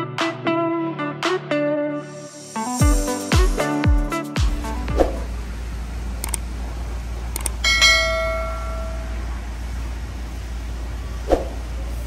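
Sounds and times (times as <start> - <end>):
steady low hum: 4.5 - 12.0
notification bell ding: 7.6 - 9.2.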